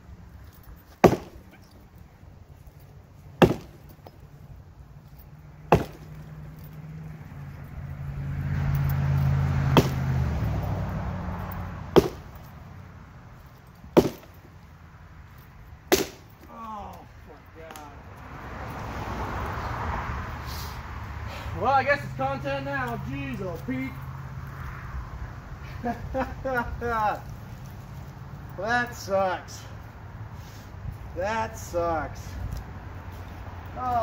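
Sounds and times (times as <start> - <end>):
passing vehicle: 0.0 - 34.0
axe chopping wood: 0.9 - 1.6, 3.4 - 3.9, 5.7 - 6.2, 9.6 - 10.3, 11.9 - 12.4, 14.0 - 14.4, 15.9 - 16.5.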